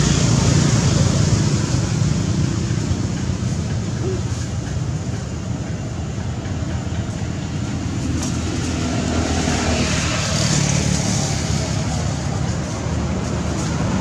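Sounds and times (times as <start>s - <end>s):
road traffic rumble: 0.0s - 14.0s
vehicle passing: 7.8s - 14.0s.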